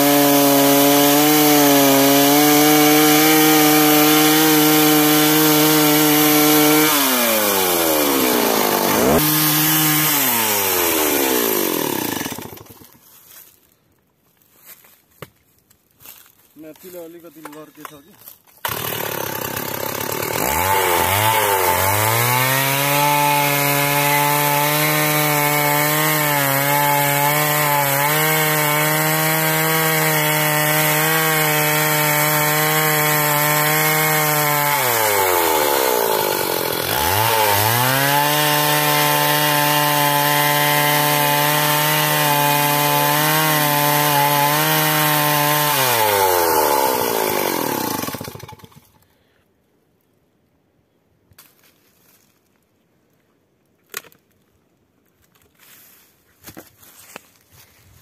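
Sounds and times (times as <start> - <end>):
chainsaw cutting tree trunk: 0.0 - 13.0, 18.6 - 49.0.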